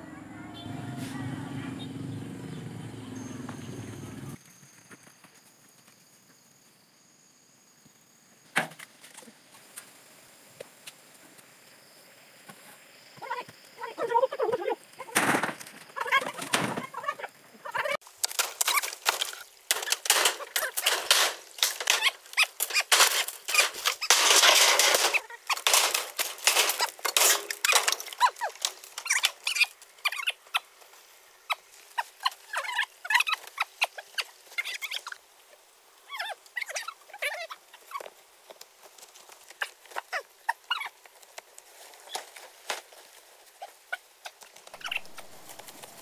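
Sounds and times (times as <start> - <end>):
bamboo poles clattering: 18.0 - 30.3
metal roofing sheets banging: 18.4 - 28.7
loud metallic crash: 22.9 - 28.0.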